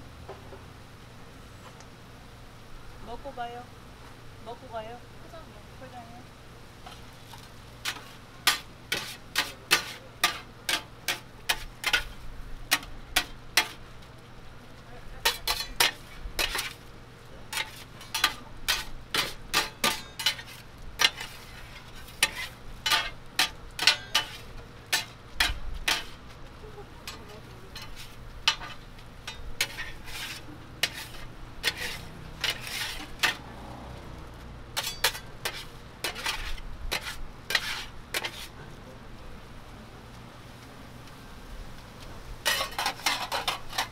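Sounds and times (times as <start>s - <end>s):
steady sizzle of frying: 0.0s - 43.9s
metal spatulas clacking on griddle: 7.8s - 13.8s, 15.2s - 16.8s, 17.5s - 26.2s, 27.0s - 33.4s, 34.8s - 38.5s, 42.4s - 43.9s.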